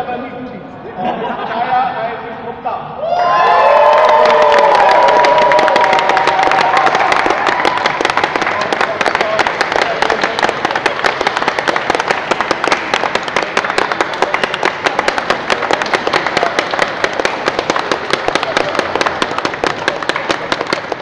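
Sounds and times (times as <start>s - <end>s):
group applauding: 3.3s - 21.0s.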